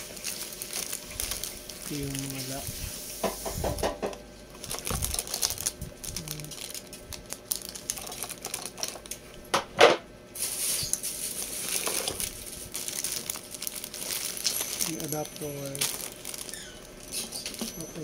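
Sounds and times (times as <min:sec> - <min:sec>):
plastic wrapping crinkling: 0:00.0 - 0:03.8, 0:04.5 - 0:09.3, 0:10.4 - 0:18.0
plastic pieces clicking and rustling: 0:04.6 - 0:09.2.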